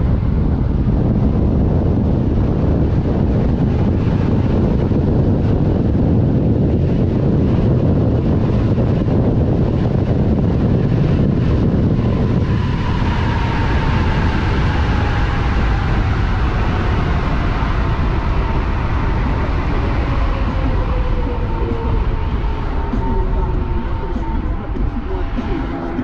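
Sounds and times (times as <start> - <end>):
wind rushing over microphone: 0.0 - 26.0.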